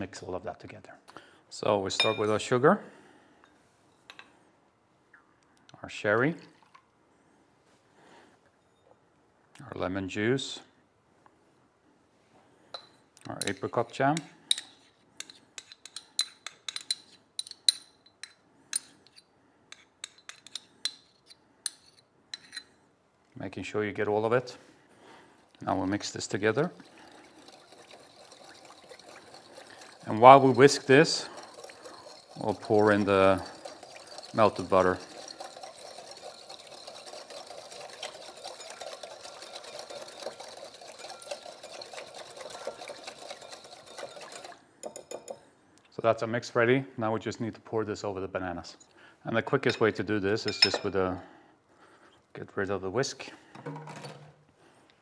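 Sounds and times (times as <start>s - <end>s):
teaspoon clinking on ceramic bowl: 2.0s - 2.4s, 12.8s - 18.9s, 26.8s - 45.4s, 49.6s - 50.9s.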